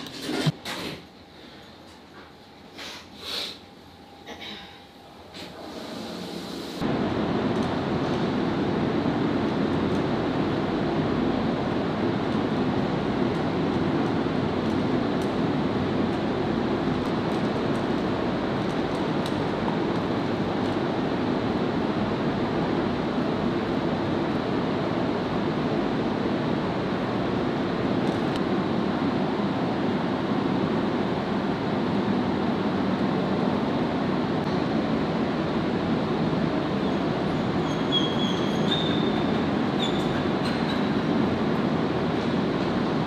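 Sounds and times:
short high squeaks: 0:37.4 - 0:40.9.

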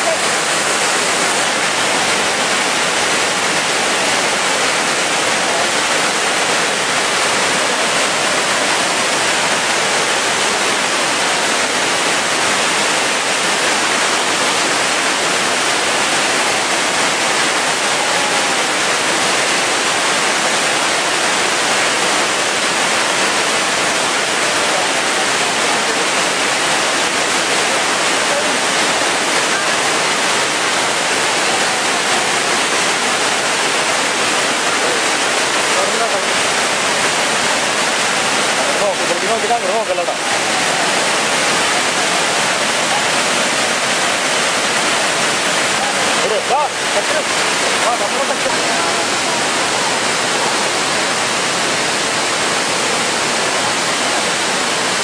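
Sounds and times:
waterfall crashing onto rock: 0:00.0 - 0:55.0.

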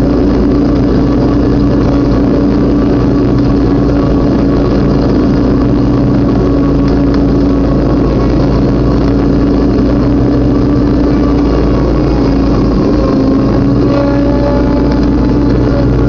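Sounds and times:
riding lawn mower engine: 0:00.0 - 0:16.0.

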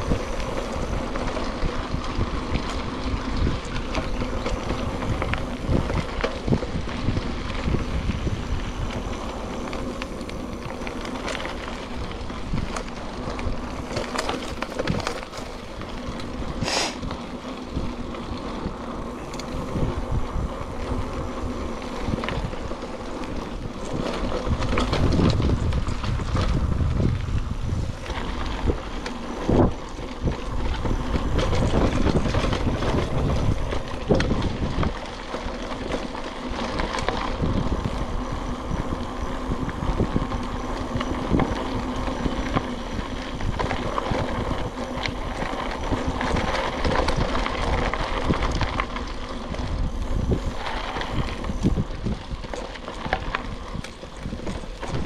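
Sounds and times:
bike rattling over bumps: 0:00.0 - 0:55.0
bike tyres rolling on dirt: 0:00.0 - 0:55.0
wind rumbling on microphone: 0:00.0 - 0:55.0.

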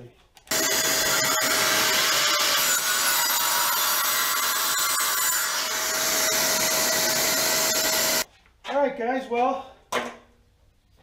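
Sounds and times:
miter saw cutting wood: 0:00.5 - 0:08.3.

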